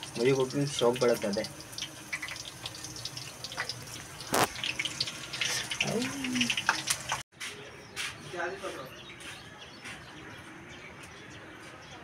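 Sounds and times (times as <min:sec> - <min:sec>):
potatoes deep-frying in oil: 0:00.0 - 0:07.2.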